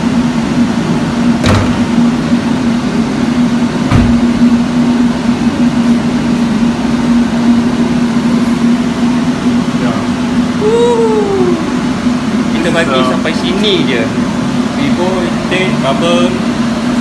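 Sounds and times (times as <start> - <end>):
car engine idling: 0.0 - 10.7.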